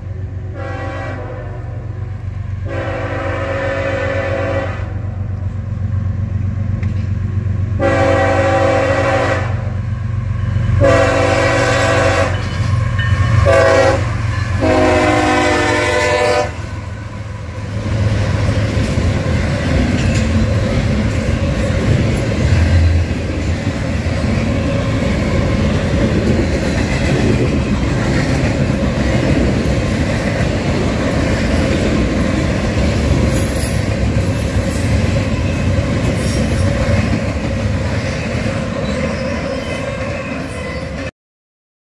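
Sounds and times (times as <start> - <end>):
train rumble and wheel clatter: 0.0 - 41.1
locomotive air horn blasts: 0.5 - 1.9, 2.6 - 5.2, 7.8 - 9.7, 10.8 - 12.5, 13.4 - 16.8.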